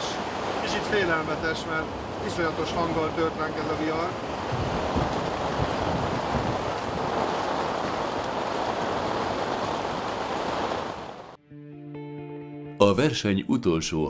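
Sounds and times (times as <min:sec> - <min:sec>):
heavy rain and wind on tent: 0:00.0 - 0:11.4.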